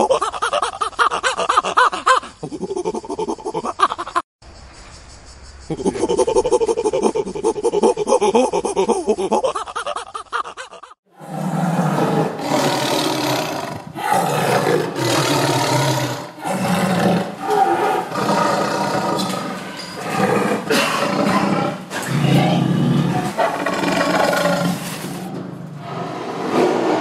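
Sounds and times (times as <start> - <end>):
lion roaring: 11.2 - 27.0.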